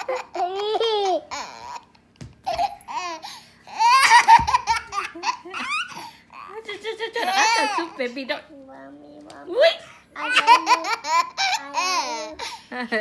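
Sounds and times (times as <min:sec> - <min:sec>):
young child laughing and babbling: 0:08.7 - 0:12.7.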